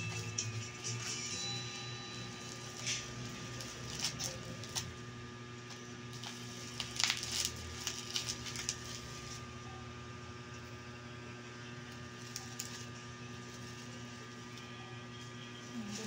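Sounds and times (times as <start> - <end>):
electrical hum: 0.0 - 16.0
bubble wrap crinkling: 2.1 - 9.5, 11.9 - 16.0.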